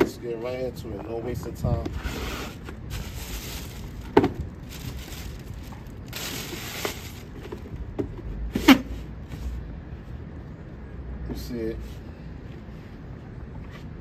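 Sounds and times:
tissue paper rustling: 2.9s - 7.4s.

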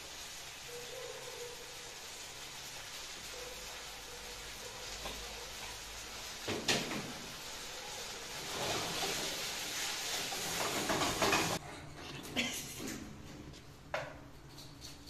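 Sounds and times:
food sizzling in a wok: 0.0s - 11.6s
wooden spatula stirring in wok: 4.8s - 11.6s.

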